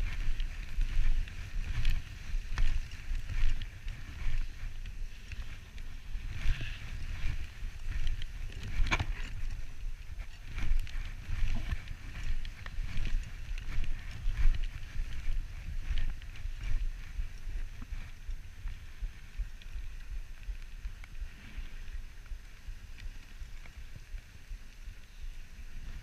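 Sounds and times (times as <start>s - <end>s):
sled knocks and rattles: 0.0s - 18.2s
sled runners rumbling on snow: 0.0s - 26.0s
wind on microphone: 0.0s - 26.0s.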